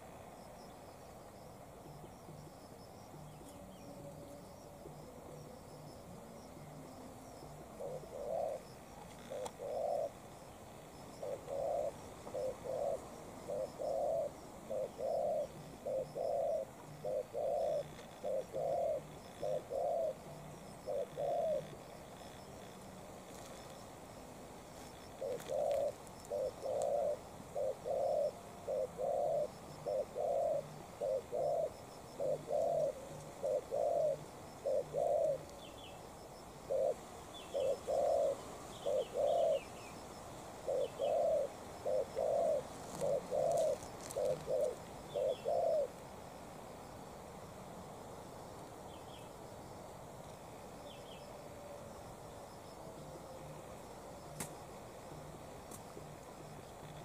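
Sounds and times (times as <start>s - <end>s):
dove cooing: 1.8s - 23.8s, 24.7s - 35.8s, 36.4s - 40.0s, 40.6s - 46.0s
small bird chirping: 40.7s - 45.9s.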